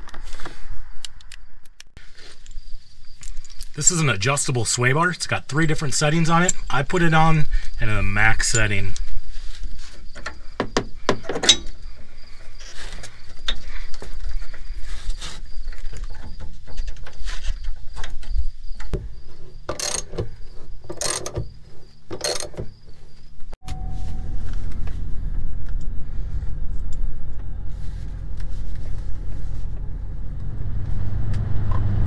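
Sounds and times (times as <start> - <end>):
insect trill: 0.6 - 27.6
metal clicks and knocks: 19.7 - 21.5.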